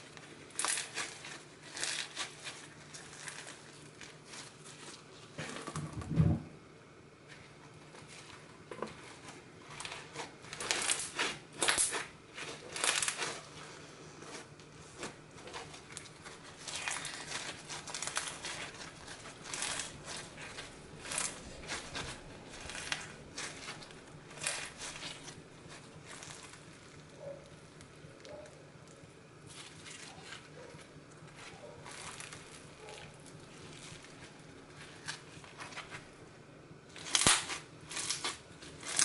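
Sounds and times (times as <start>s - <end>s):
foam beads crunching in slime: 0.0s - 5.1s, 9.7s - 13.5s, 15.0s - 27.0s, 31.3s - 36.0s, 36.9s - 39.0s.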